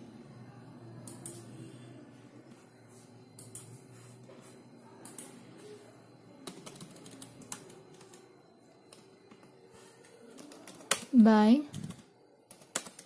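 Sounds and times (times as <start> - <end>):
computer keyboard keystrokes: 5.0 - 5.3, 6.4 - 8.3, 10.3 - 13.0.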